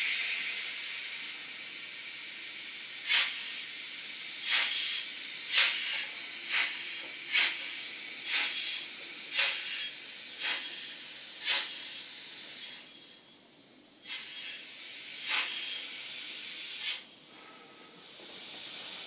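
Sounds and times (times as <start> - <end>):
steam hiss: 0.0 - 13.2, 14.0 - 19.0
model steam locomotive chuffs: 0.0 - 13.3, 14.0 - 19.0.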